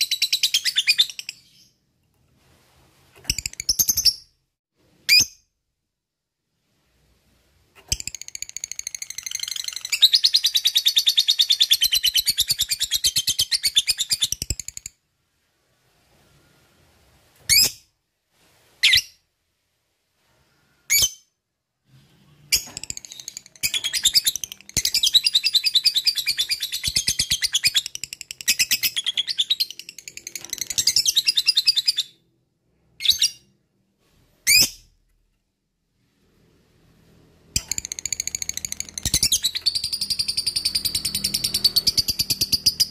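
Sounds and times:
short rising bird chirps: 37.6s - 42.9s.

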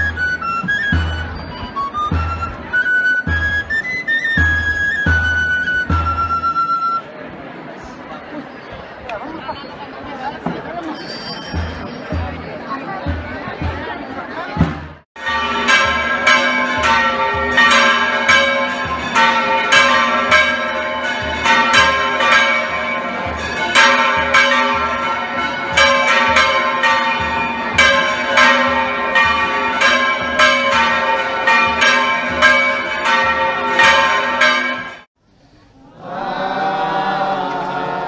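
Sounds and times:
church bells pealing: 15.2s - 35.1s.

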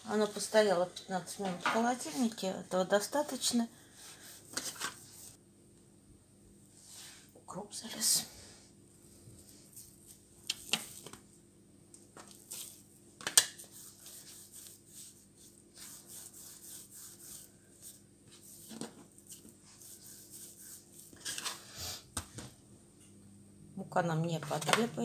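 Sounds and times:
dough rubbing and rolling: 12.2s - 21.8s.

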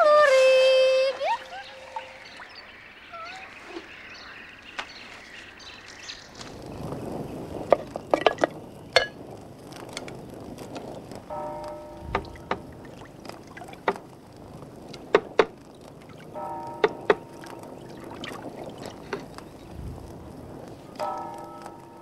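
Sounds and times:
faint bird calls: 0.0s - 9.0s
soft wash of water: 0.0s - 22.0s.

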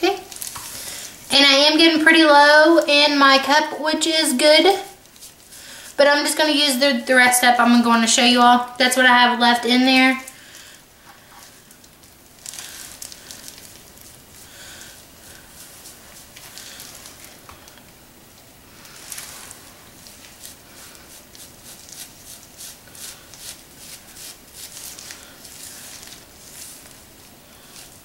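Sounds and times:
brush rustling through hair: 5.0s - 6.0s, 12.6s - 17.5s, 18.7s - 28.0s.

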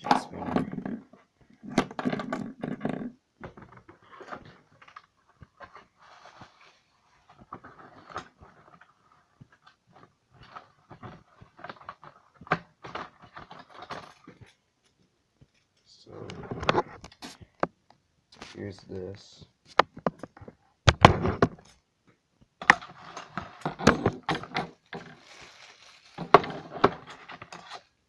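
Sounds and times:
small objects clicking and rustling: 3.5s - 17.6s, 22.6s - 27.9s.

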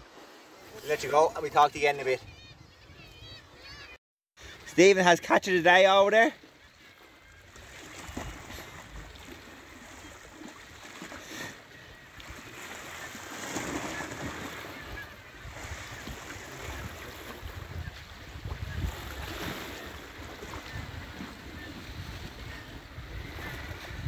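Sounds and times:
sea surf washing against rocks: 12.2s - 24.0s
wind rumbling on microphone: 14.2s - 24.0s.

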